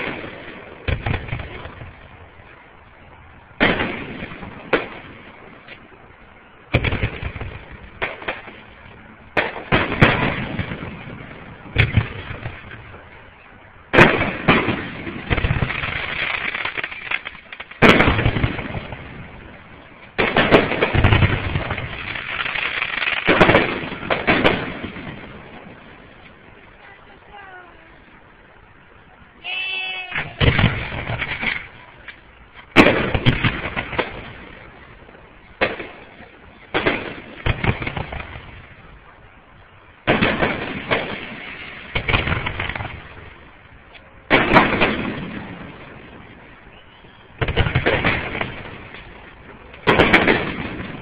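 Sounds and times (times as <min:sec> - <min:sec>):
fireworks bursting: 0:00.0 - 0:51.0.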